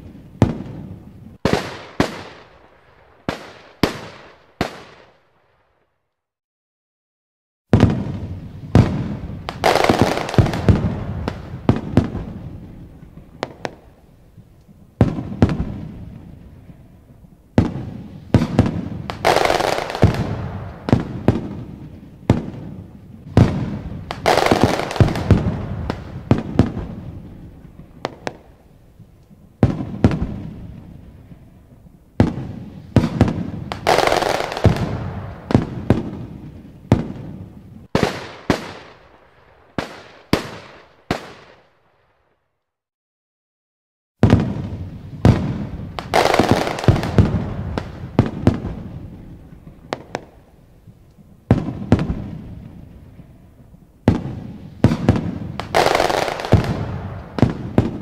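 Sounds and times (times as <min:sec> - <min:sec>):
firework shells booming: 0:07.7 - 0:14.0, 0:17.5 - 0:31.5, 0:32.2 - 0:41.6, 0:44.2 - 0:50.5, 0:54.0 - 0:58.0.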